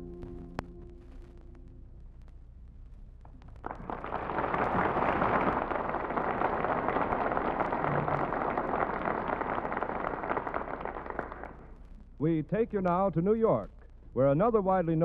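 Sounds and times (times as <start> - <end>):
radio static crackling hiss: 0.0 - 15.0.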